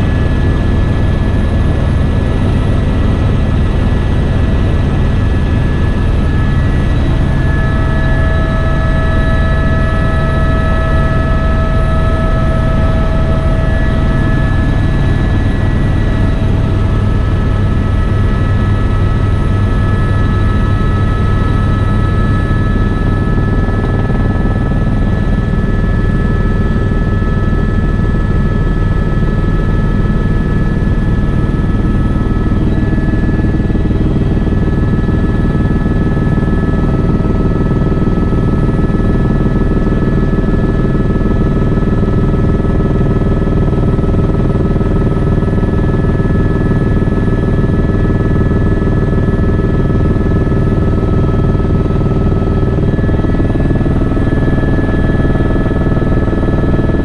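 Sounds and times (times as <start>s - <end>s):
helicopter drone: 0.0s - 57.0s.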